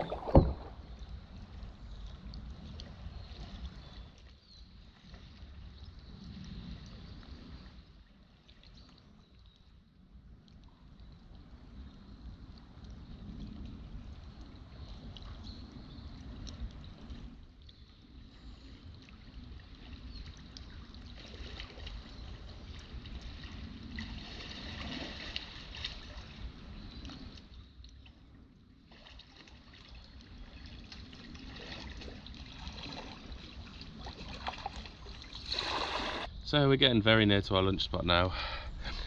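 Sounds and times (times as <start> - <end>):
kayak paddle strokes: 0.0 - 0.8, 31.6 - 36.3
shallow river flowing: 0.0 - 36.4, 38.2 - 39.0.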